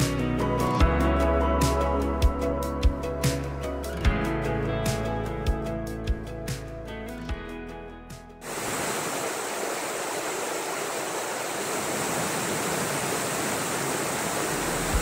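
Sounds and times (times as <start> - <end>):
creek cascading: 8.4 - 15.0
waterfall pouring onto rocks: 8.4 - 15.0.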